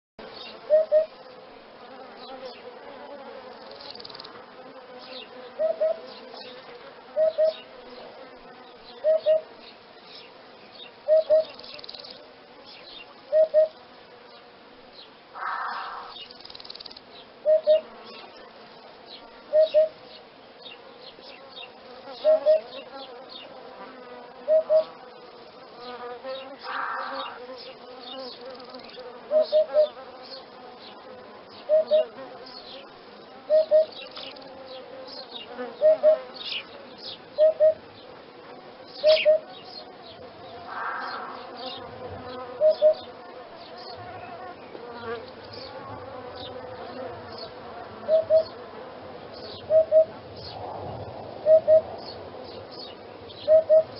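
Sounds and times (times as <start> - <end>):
insects buzzing: 0.2 - 53.9
hoopoe calling: 0.7 - 1.2, 5.6 - 6.0, 7.2 - 7.7, 9.0 - 9.5, 11.0 - 11.6, 13.3 - 13.8, 15.4 - 16.2, 17.4 - 17.9, 19.5 - 20.0, 22.2 - 22.7, 24.4 - 24.9, 29.3 - 30.0, 31.6 - 32.2, 33.5 - 34.0, 35.8 - 36.3, 37.4 - 37.9, 39.0 - 39.6, 42.5 - 43.1, 48.0 - 48.6, 49.6 - 50.2, 51.4 - 51.9, 53.4 - 53.9.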